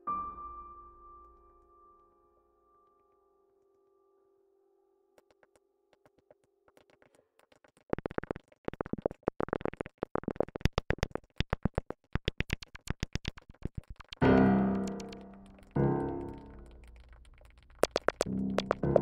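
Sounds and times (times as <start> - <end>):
rapid ticking percussion beat: 6.9 - 19.0.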